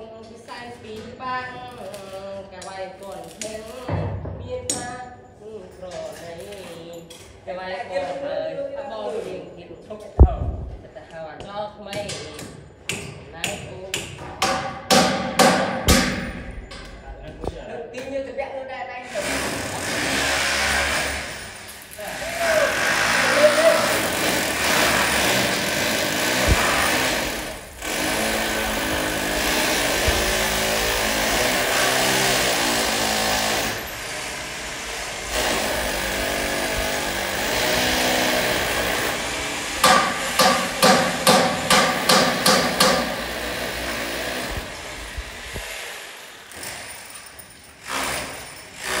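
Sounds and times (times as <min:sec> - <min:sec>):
sharp metal taps: 0:11.9 - 0:17.1, 0:39.8 - 0:43.2
welding arc crackling and hissing: 0:19.1 - 0:40.8.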